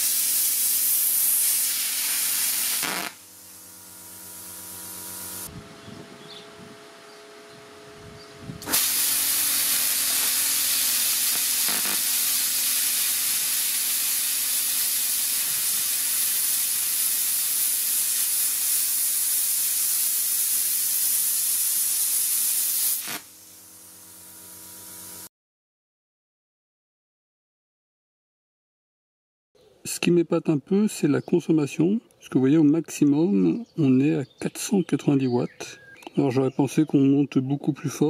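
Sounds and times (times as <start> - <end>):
plasma cutter hiss: 0.0 - 5.5, 8.6 - 25.3
machine humming: 0.0 - 17.6, 23.0 - 25.3.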